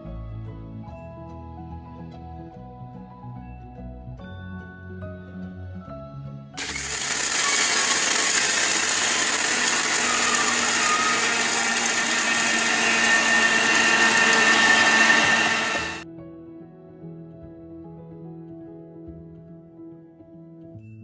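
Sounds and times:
mixer grinder running: 6.6s - 16.0s.

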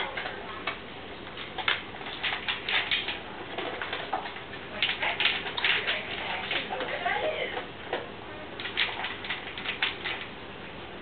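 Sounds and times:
animals crunching dry food: 0.0s - 6.9s, 8.6s - 10.3s.

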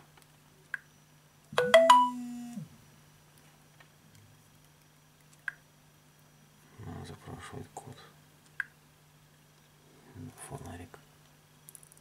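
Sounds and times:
phone notification chime: 1.6s - 2.3s.

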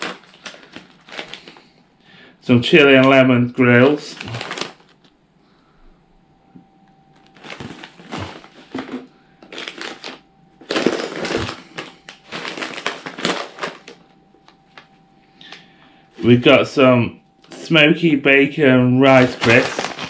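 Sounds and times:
plastic packets crinkling: 0.0s - 1.7s, 3.8s - 5.2s, 7.2s - 15.7s, 19.1s - 20.0s.

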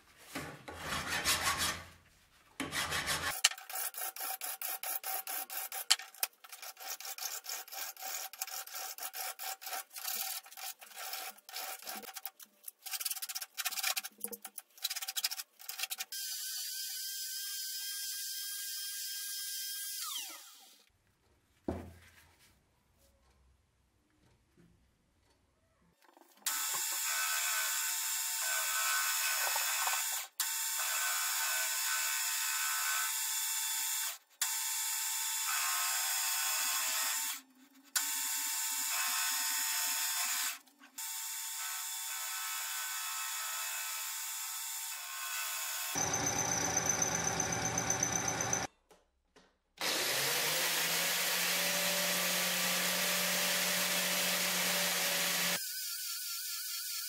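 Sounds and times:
angle grinder on metal: 2.6s - 12.3s, 26.5s - 33.2s, 38.0s - 48.7s, 49.8s - 57.0s.

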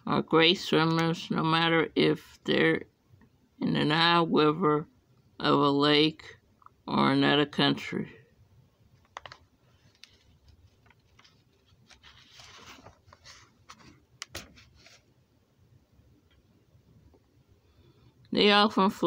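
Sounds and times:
book pages rustling and turning: 9.0s - 15.2s.

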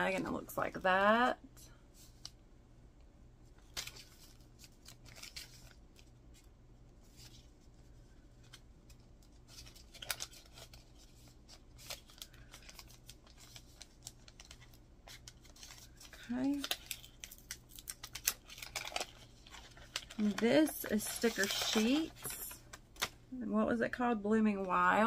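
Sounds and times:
paper rustling and crinkling: 3.5s - 23.2s.

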